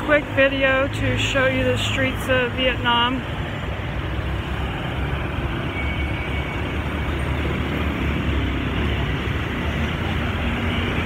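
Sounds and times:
motorbikes and cars passing: 0:00.0 - 0:11.0.

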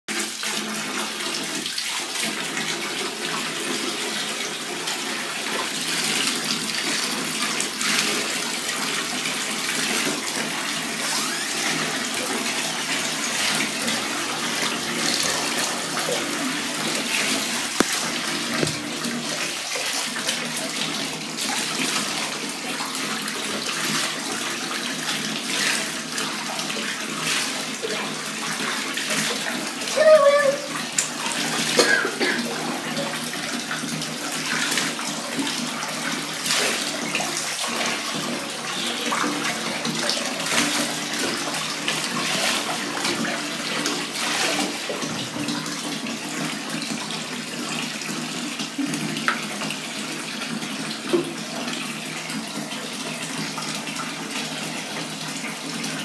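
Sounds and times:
water running into bathtub: 0:00.1 - 0:56.0
water splashing: 0:06.0 - 0:46.0.

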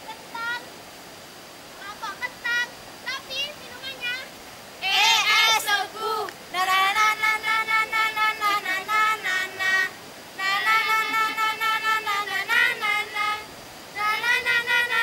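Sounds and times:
children singing: 0:04.8 - 0:15.0.

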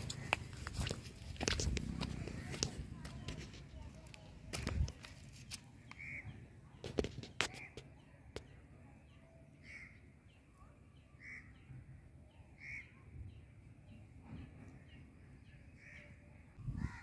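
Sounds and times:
bird calling: 0:05.9 - 0:06.5.

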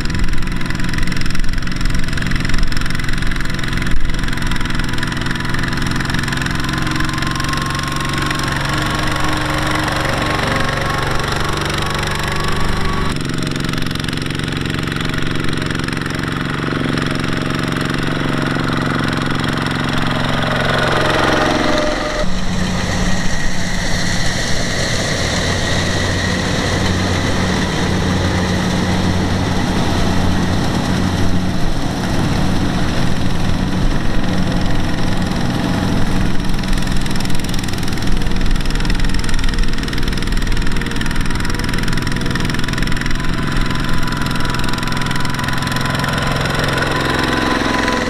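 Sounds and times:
diesel tractor engines knocking: 0:00.0 - 0:48.0.

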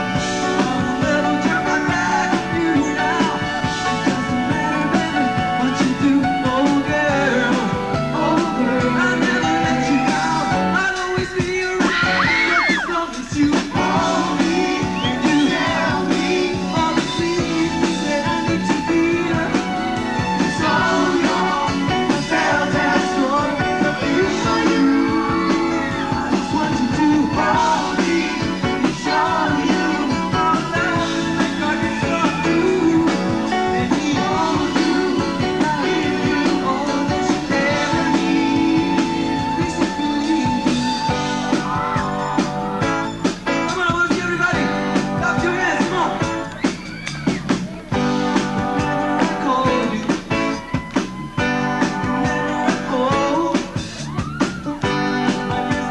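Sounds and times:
man singing: 0:00.0 - 0:41.4, 0:43.6 - 0:46.4, 0:48.5 - 0:54.2
live rock band: 0:00.0 - 0:55.9.

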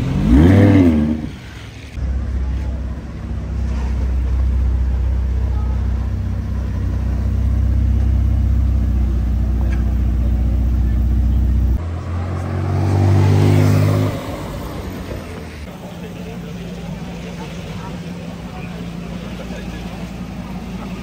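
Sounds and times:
car engine revving up: 0:00.0 - 0:02.8, 0:06.3 - 0:15.7
car engine low drone: 0:00.0 - 0:21.0.

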